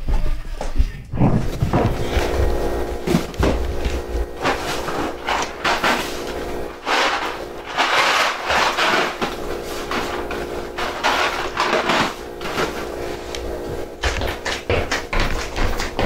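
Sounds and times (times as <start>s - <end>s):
faint steady hum: 0.2s - 16.0s
boxes and jars scraping and knocking: 1.2s - 13.2s.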